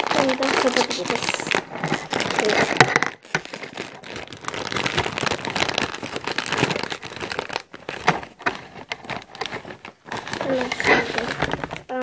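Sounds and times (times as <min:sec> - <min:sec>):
plastic crisp bag crinkling: 0:00.0 - 0:12.0.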